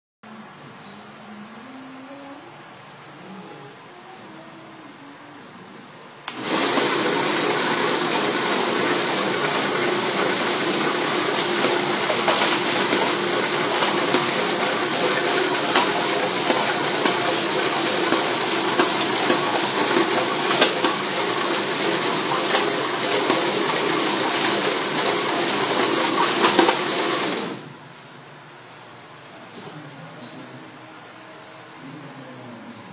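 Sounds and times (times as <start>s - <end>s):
drill press running: 6.3s - 27.8s.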